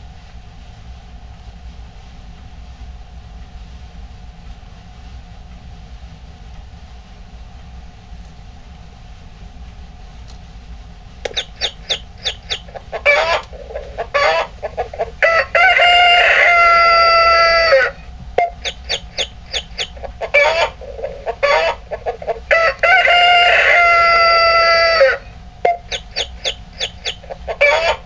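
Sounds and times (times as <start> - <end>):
recorded rooster call alarm: 11.3 - 28.0.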